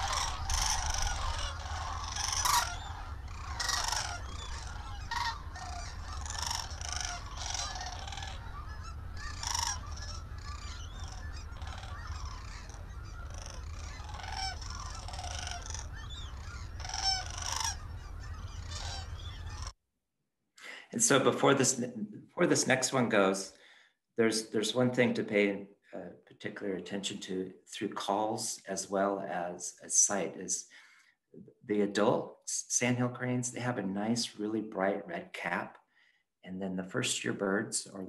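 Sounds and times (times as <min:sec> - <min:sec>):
cranes rattling bugle calls: 0:00.0 - 0:19.7.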